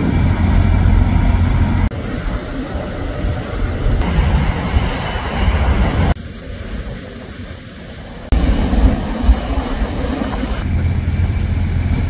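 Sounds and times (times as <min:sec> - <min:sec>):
fire truck engines and pumps rumbling: 0:00.0 - 0:12.0
hiss: 0:04.7 - 0:10.7.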